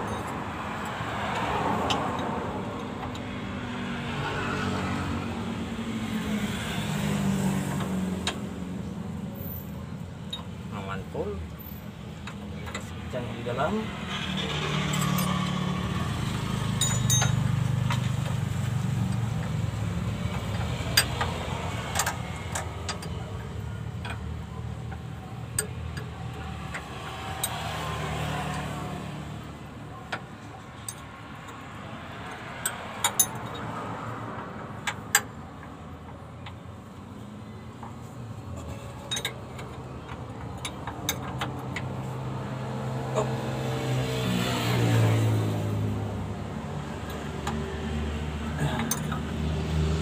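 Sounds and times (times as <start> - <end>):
wrench clinking on metal: 16.7 - 18.4, 20.3 - 27.7, 32.2 - 33.7, 38.6 - 41.9, 48.5 - 49.4.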